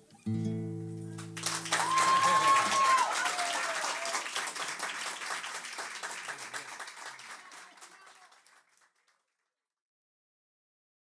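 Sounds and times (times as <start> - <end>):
audience applauding: 1.2 - 9.3.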